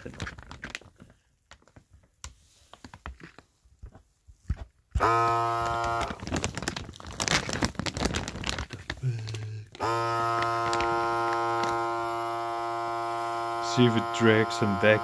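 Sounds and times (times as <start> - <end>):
plastic bag crackling: 0.0 - 3.4, 5.0 - 13.9
vacuum sealer motor hum: 5.0 - 15.0.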